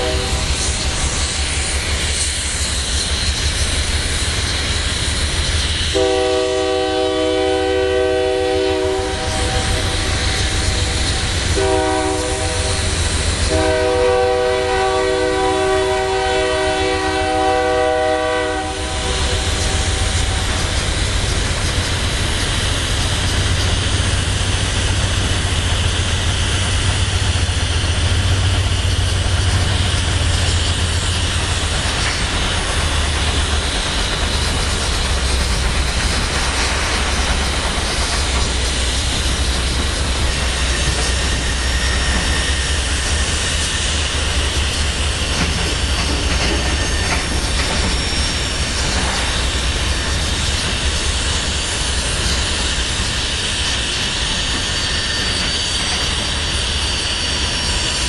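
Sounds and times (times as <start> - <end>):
locomotive air horn blasts: 0.0 - 0.7, 5.9 - 20.1
freight cars rumbling: 18.8 - 53.9.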